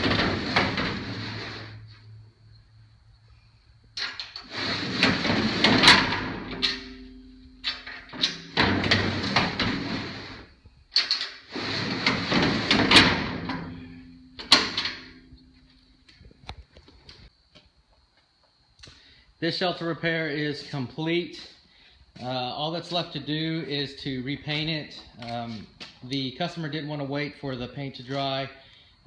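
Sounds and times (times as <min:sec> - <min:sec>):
steel door clanking shut: 0:00.0 - 0:02.2, 0:04.0 - 0:15.5
steel door scraping on tracks: 0:00.0 - 0:02.3, 0:04.0 - 0:15.2.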